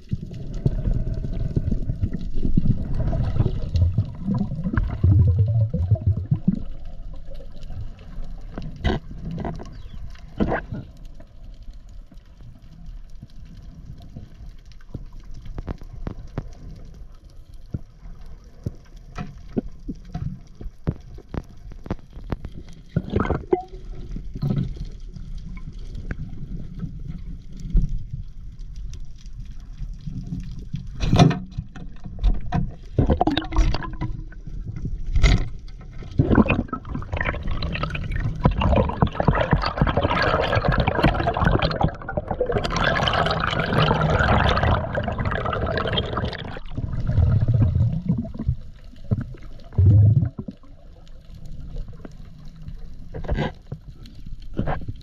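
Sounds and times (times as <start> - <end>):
water sloshing and gurgling: 0.0 - 55.0
dense rushing water: 36.1 - 50.7.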